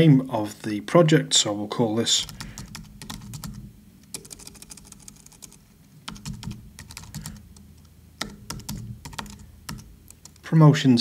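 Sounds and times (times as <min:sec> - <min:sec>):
typing on keyboard: 0:02.2 - 0:07.4, 0:08.2 - 0:10.4.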